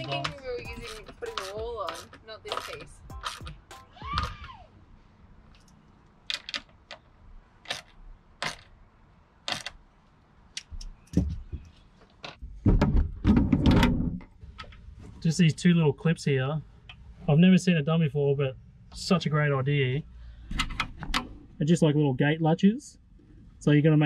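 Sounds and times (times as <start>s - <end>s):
heavy thuds and shuffling: 10.7s - 15.2s
wooden panels knocking: 12.3s - 14.2s.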